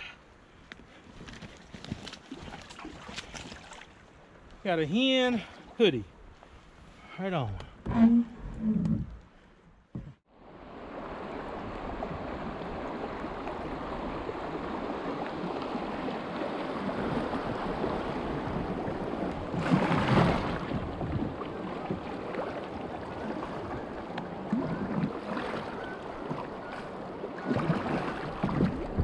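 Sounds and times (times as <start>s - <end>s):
rushing river current: 10.3s - 29.0s
paddle strokes splashing: 11.0s - 29.0s.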